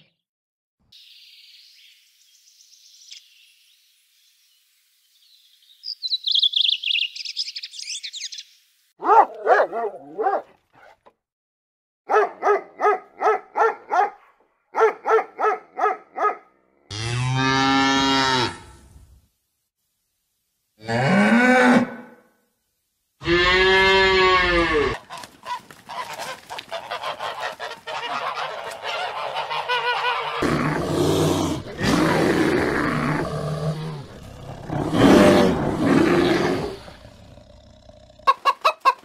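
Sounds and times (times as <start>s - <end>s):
cow mooing: 16.9s - 18.7s, 23.2s - 25.0s.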